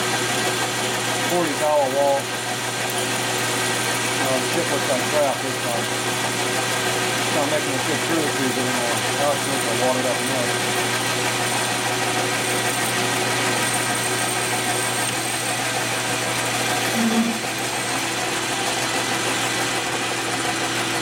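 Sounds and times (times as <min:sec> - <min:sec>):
machine tool humming: 0:00.0 - 0:21.0.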